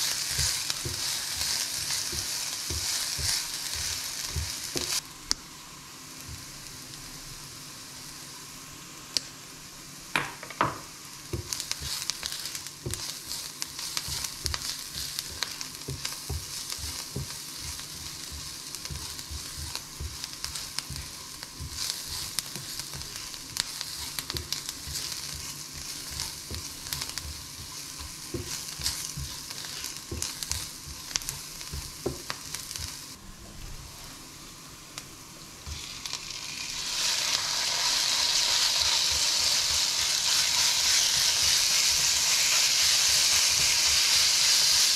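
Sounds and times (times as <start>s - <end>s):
food sizzling in a frying pan: 0.0s - 33.2s, 33.8s - 44.9s
spatula scraping a pan: 11.4s - 33.0s, 37.0s - 44.9s.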